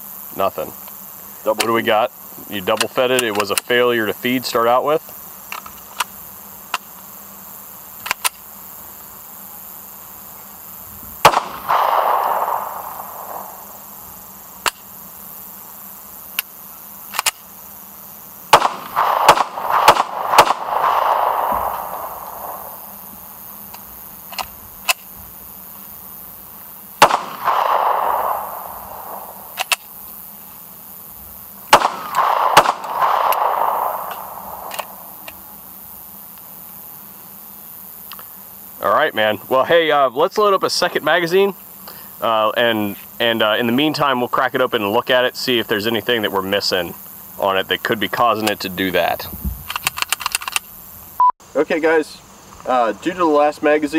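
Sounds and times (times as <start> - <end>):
pistol handling clicks: 8.0 - 8.4, 17.1 - 17.5, 27.0 - 30.2, 31.7 - 35.5, 49.6 - 50.7
pistol shots with echo: 11.2 - 13.8, 18.5 - 22.8, 27.0 - 29.7, 31.7 - 35.3.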